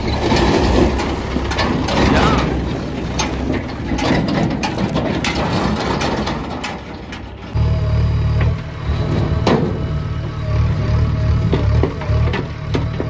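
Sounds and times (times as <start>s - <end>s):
backhoe loader engine running: 0.0s - 13.0s
tractor engine running: 0.0s - 13.0s.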